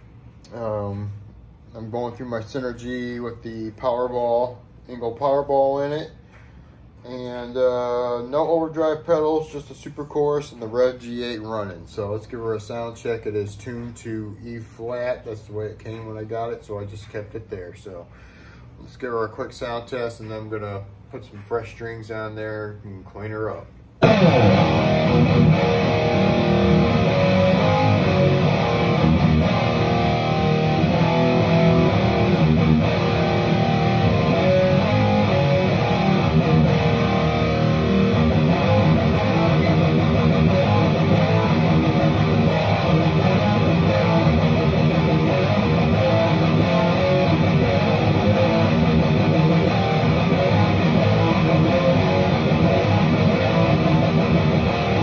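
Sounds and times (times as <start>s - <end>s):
electric guitar playing: 24.0s - 55.0s.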